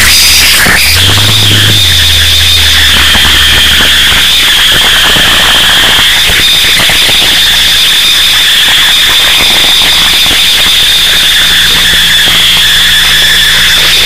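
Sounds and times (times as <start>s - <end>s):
low hum: 0.0s - 6.6s
piercing high tone: 0.0s - 6.9s
distorted crackling static: 0.0s - 12.9s.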